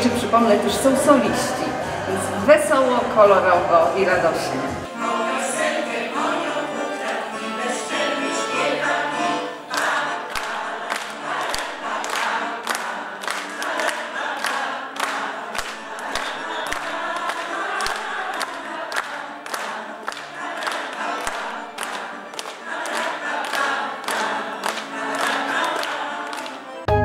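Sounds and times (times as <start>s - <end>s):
women's choir singing: 0.0s - 26.9s
accordion: 0.0s - 27.0s.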